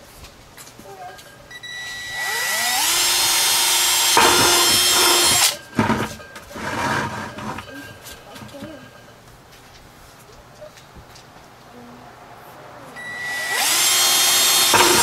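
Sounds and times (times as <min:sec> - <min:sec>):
cordless drill boring plastic: 0:01.6 - 0:06.2, 0:13.0 - 0:15.0
knocks: 0:04.0 - 0:08.9.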